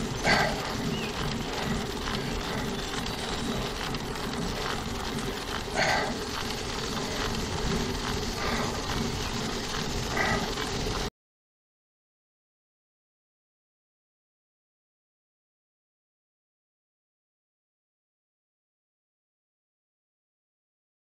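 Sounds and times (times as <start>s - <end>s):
bicycle road noise: 0.0s - 11.1s.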